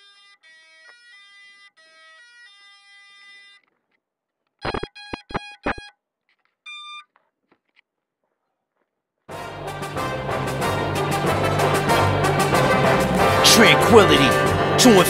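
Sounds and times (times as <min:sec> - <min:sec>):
electronic startup beeps: 0:04.6 - 0:05.9.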